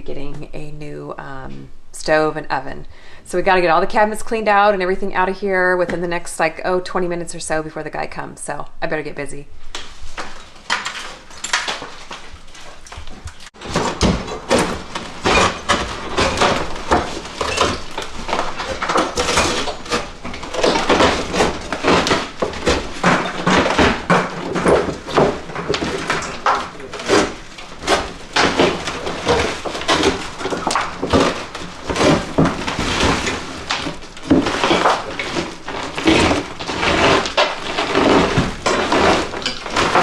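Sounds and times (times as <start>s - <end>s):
tile cracking and crunching: 9.8s - 40.0s.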